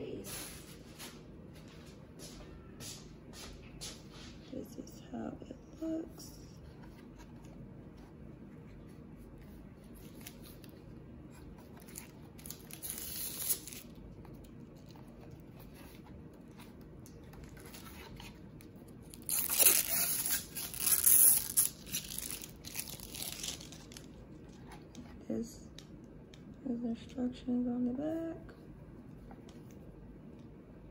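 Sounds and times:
plastic film tearing and crinkling: 11.8 - 14.0, 19.1 - 24.1.

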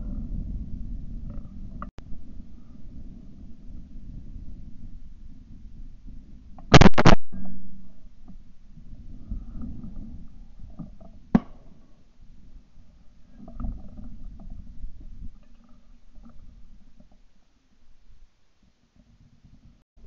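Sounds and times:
low rumbling wind: 0.0 - 19.8
microphone handling noise: 6.5 - 11.9
sharp crack: 6.6 - 7.6, 11.3 - 11.8.

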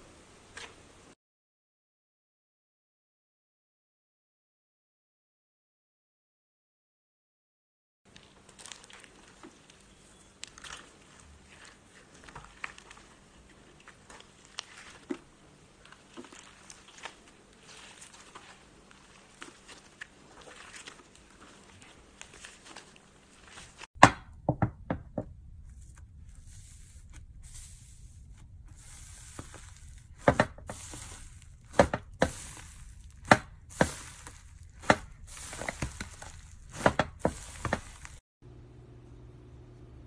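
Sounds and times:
foam slime crackling: 8.1 - 23.9, 25.6 - 38.2.

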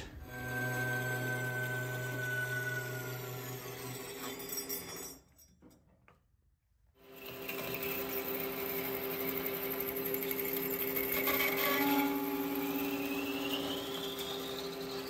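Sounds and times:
metal lathe humming: 0.0 - 4.3, 7.1 - 15.0.

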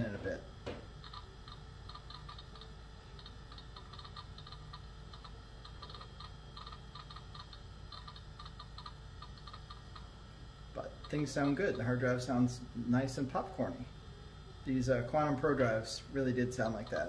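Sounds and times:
low steady machine hum: 0.0 - 17.0
hard drive clicking: 0.6 - 10.1.

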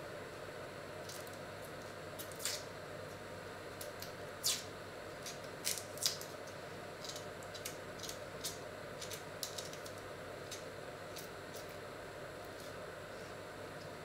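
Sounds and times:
faint room hum: 0.0 - 14.0
knife snipping and scraping onion skin: 1.0 - 2.7, 3.8 - 11.8.

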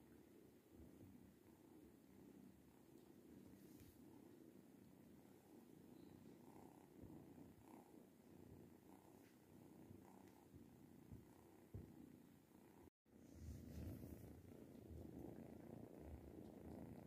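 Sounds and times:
cat purring: 0.0 - 17.0.

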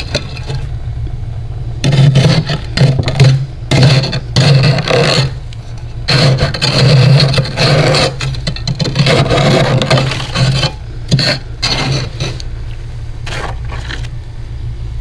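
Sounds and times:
metal utensil scraping frost: 1.8 - 12.4.

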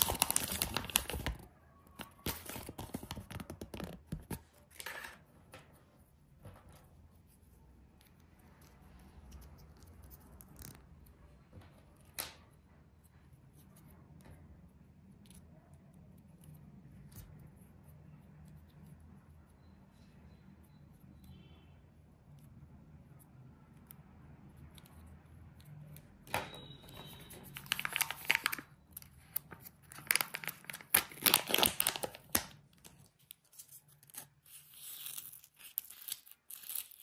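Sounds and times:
plastic bag crinkling: 0.0 - 1.4, 27.5 - 28.7, 29.8 - 32.5.

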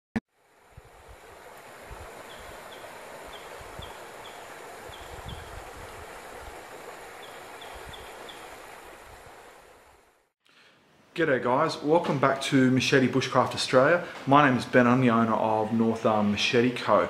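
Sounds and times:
creek running over rocks: 0.3 - 10.3
small bird chirping: 2.3 - 5.5, 7.2 - 8.5.

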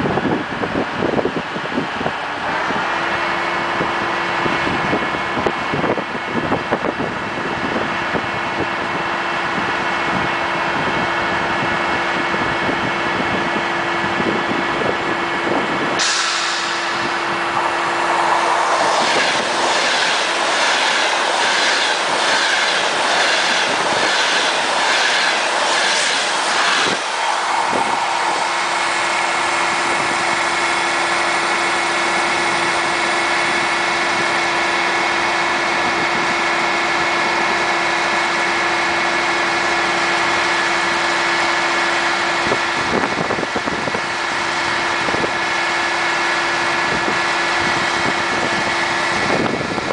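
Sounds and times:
diesel engine drone: 0.0 - 49.9
train wheels clattering over rails: 16.0 - 28.4.

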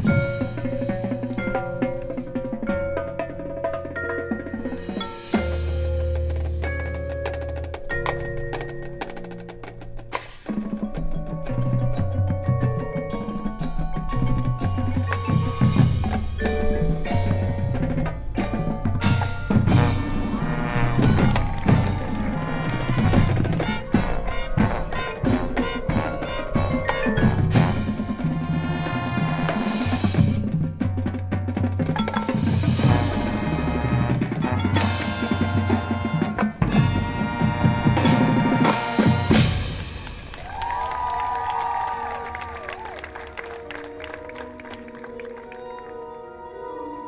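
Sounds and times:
mallet percussion ringing: 0.0 - 28.6
sharp percussion hits: 0.0 - 40.6
marching band music: 0.0 - 46.6
crowd cheering: 19.7 - 24.6, 37.6 - 47.0.

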